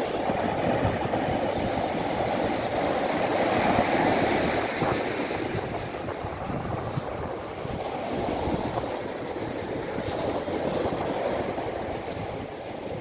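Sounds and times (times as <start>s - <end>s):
surf washing up pebble beach: 0.0s - 13.0s
wind buffeting microphone: 0.0s - 13.0s.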